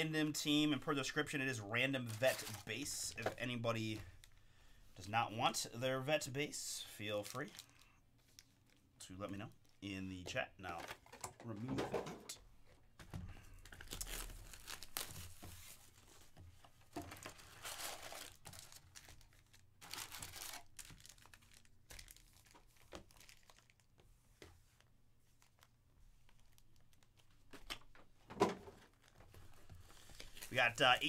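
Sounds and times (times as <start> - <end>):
shrink wrap crinkling and tearing: 1.8 - 3.2, 7.0 - 8.9, 13.6 - 16.0, 17.1 - 24.0, 25.4 - 27.8, 28.9 - 31.0
foil packs rustling: 1.8 - 4.3, 13.5 - 16.2, 17.0 - 23.9, 28.8 - 31.0.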